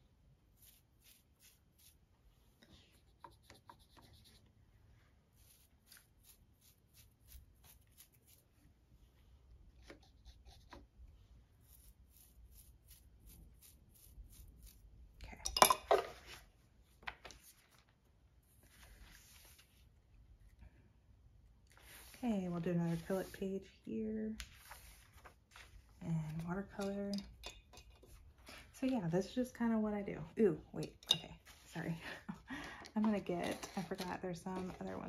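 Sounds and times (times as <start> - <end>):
paper pages turning: 17.0 - 18.0, 18.6 - 19.8, 24.4 - 26.4.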